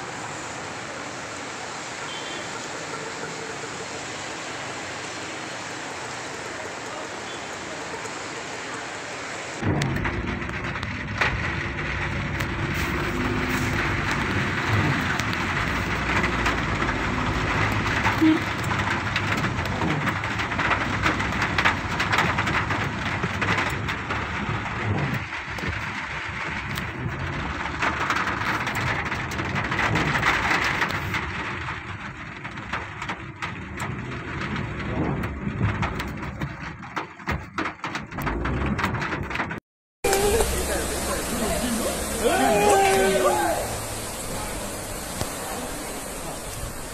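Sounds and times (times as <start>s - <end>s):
heavy rain on a car: 0.0s - 46.9s
car rumbling on the road: 9.4s - 46.9s.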